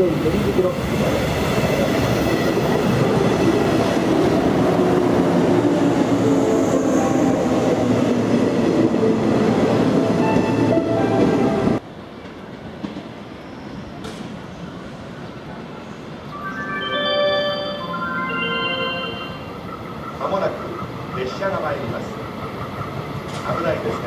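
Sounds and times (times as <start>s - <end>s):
train wheels rumbling on rails: 0.0s - 14.5s, 19.9s - 24.0s
train whining tones: 16.3s - 21.4s.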